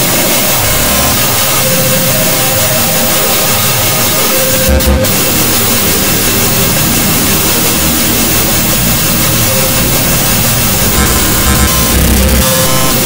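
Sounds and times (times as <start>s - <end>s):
faint steady tones: 0.0s - 13.0s
harsh noise electronic music: 0.0s - 13.0s
low rumble: 4.6s - 12.9s.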